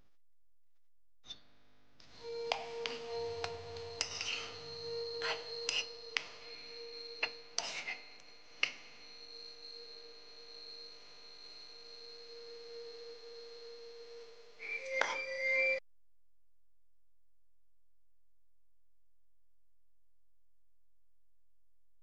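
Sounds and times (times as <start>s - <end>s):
loud tonal sound: 2.2s - 7.6s
faint high-pitched tone: 2.2s - 15.8s
spoon scraping a bowl: 2.6s - 6.3s, 7.6s - 8.1s.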